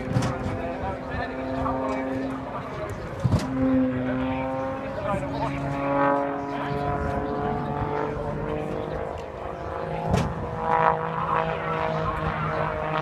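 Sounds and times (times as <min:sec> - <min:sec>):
propeller plane droning overhead: 0:00.0 - 0:13.0.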